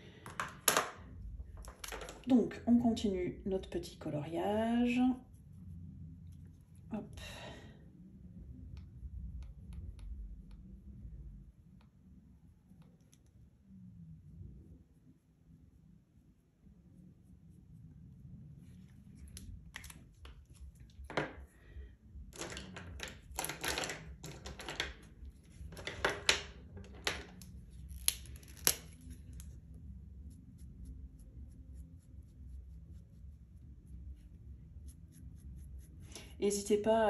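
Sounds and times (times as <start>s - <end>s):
marker pens clicking and rustling: 1.5s - 2.3s, 22.4s - 29.6s
marker scratching on fabric: 30.2s - 36.2s.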